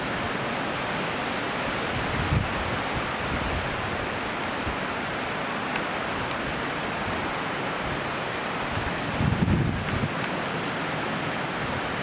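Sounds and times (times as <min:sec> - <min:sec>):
rushing outdoor ambience by water: 0:00.0 - 0:12.0
wind buffeting on microphone: 0:01.7 - 0:05.0, 0:07.8 - 0:10.4.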